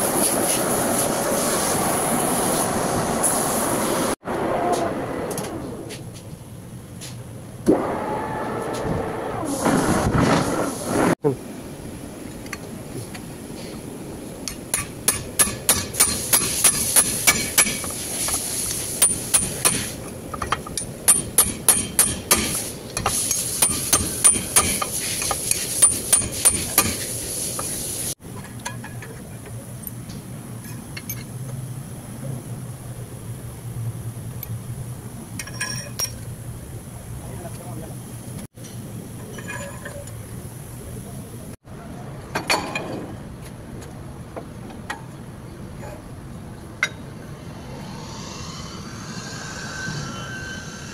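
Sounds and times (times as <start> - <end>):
low hum: 45.5 - 50.9.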